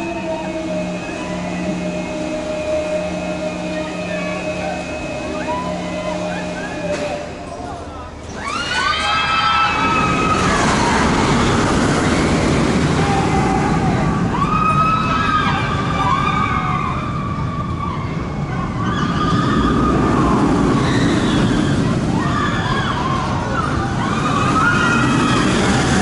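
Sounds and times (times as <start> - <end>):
roller coaster rushing on track: 0.0 - 26.0
riders screaming: 8.3 - 26.0.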